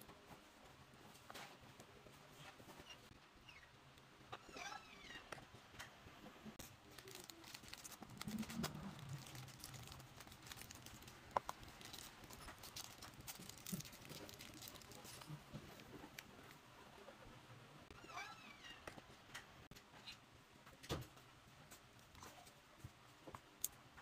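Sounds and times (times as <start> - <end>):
plastic bag crinkling: 6.6 - 16.4.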